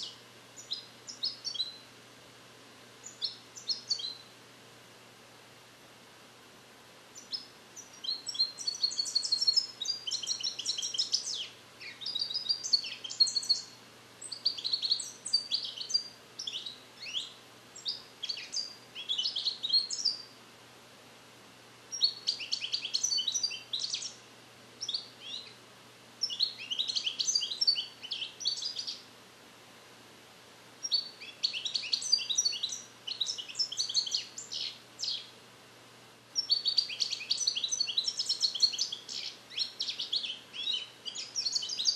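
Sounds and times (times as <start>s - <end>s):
finch twittering and trilling: 0.0s - 1.8s, 3.0s - 4.2s, 7.2s - 20.3s, 22.0s - 24.2s, 24.8s - 25.6s, 26.2s - 29.0s, 30.8s - 35.3s, 36.4s - 41.9s.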